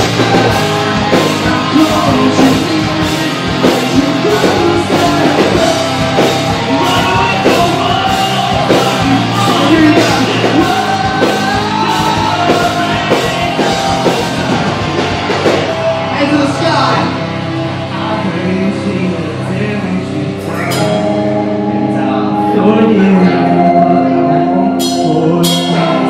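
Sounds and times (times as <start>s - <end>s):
pounding drum kit: 0.0s - 17.8s, 24.8s - 26.0s
bass guitar: 0.0s - 26.0s
distorted electric guitar: 0.0s - 26.0s
person singing: 0.0s - 26.0s.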